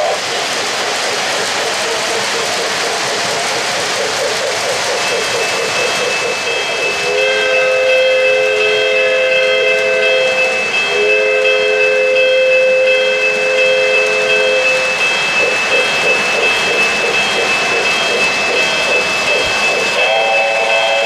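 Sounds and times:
model train running on track: 0.0 - 21.0
model train whistle blasts: 7.0 - 14.8, 20.0 - 21.0.

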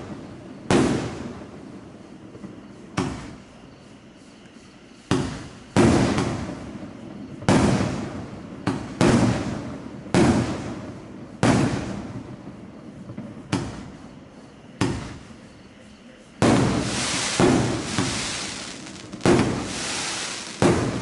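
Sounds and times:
fireworks bangs: 16.4 - 21.0.

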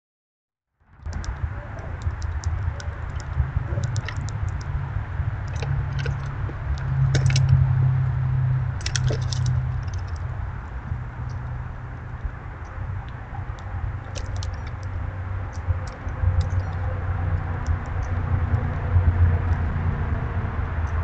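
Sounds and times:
steady low rumble: 0.8 - 21.0
ticks and crackles in snow: 1.0 - 4.7.

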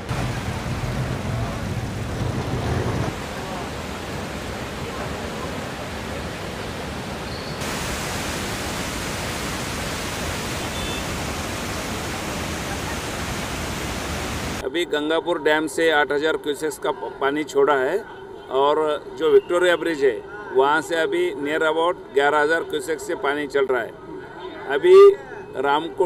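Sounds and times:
floodwater rushing: 0.0 - 14.6.

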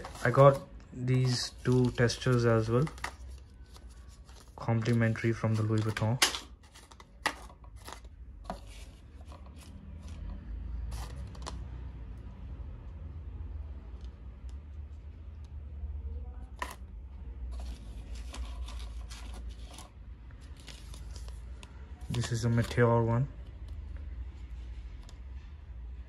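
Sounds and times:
stiff paper rustling: 0.0 - 7.0.

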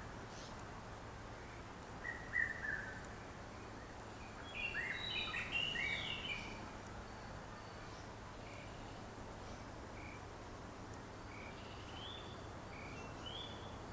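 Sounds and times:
background hiss: 0.0 - 13.9
birds chirping and whistling: 4.3 - 6.6.

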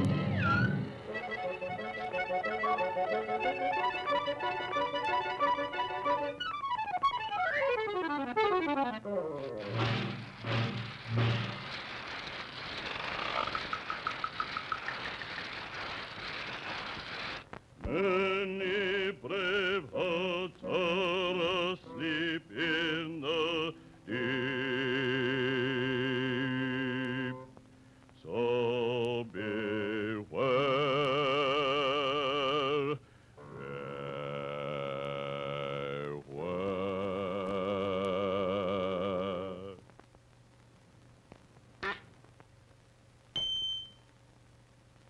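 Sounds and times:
steady rushing noise: 9.6 - 17.7
man singing operatically: 17.8 - 27.5, 28.2 - 39.8.

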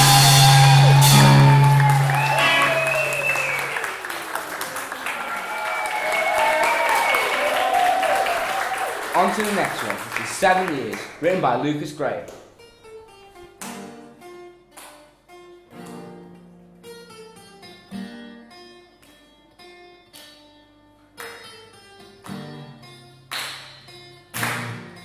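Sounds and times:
acoustic guitars picking chords: 0.0 - 4.0.

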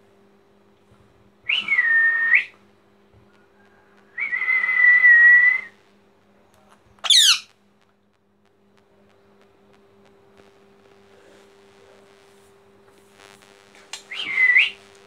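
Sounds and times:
faint electrical hum: 0.0 - 15.0
parakeet shrill screech: 7.0 - 7.5
parakeet whistled calls: 7.0 - 7.5.

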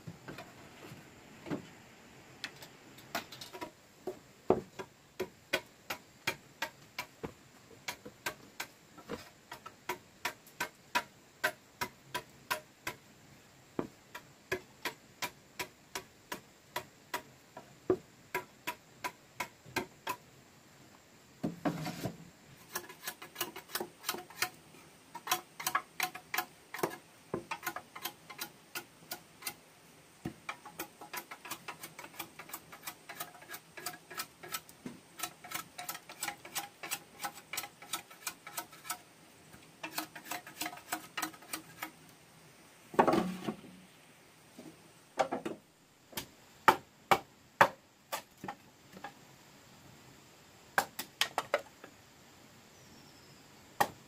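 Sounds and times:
machete chopping bamboo: 46.2 - 48.4.

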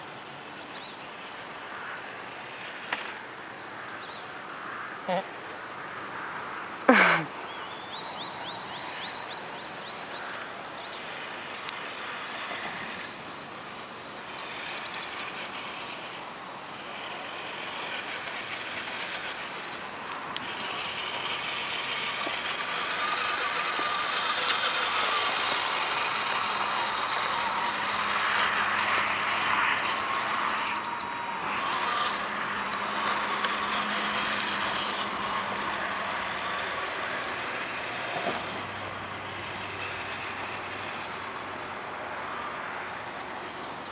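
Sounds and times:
electric motor whining: 9.9 - 43.5.

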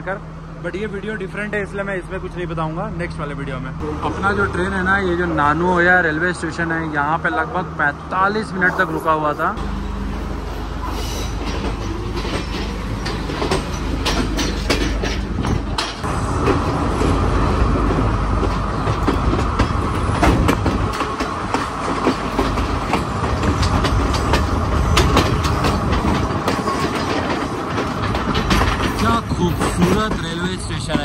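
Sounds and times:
train running rumble: 0.0 - 31.0
wheels clicking over rail joints: 11.0 - 31.0.

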